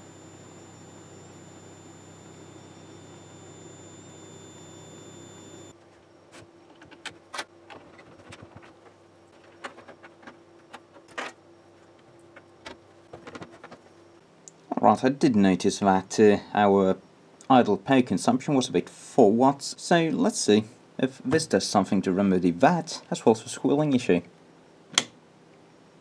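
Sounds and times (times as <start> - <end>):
low hum: 0.0 - 5.7
power supply high-pitched squeal: 0.0 - 6.2.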